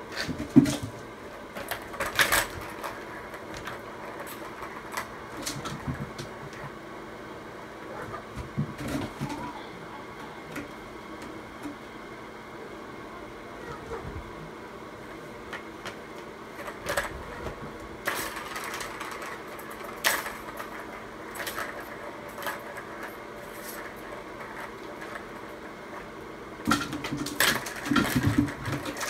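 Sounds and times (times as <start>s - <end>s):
plastic balls rattling on track: 0.4s - 6.7s, 15.5s - 29.0s.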